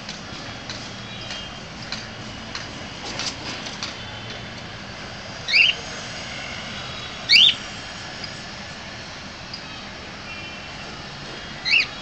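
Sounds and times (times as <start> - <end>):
steady background hum: 0.0 - 12.0
cockatiel calls: 5.5 - 5.8, 7.3 - 7.6, 11.6 - 12.0.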